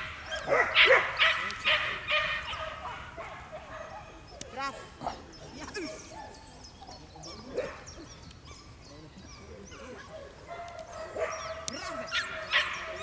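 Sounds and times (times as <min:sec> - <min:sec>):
dog barking and yipping: 0:00.0 - 0:05.2, 0:09.4 - 0:13.0.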